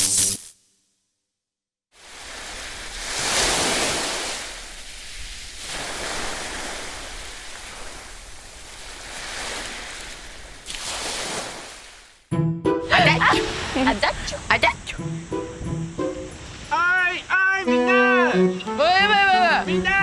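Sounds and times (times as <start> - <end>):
surf washing on sandy beach: 2.0 - 12.1, 13.2 - 14.5.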